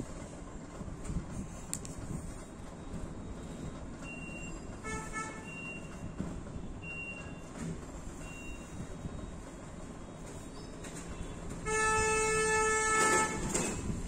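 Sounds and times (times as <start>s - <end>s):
two-pulse horn-like tone: 11.2s - 13.8s.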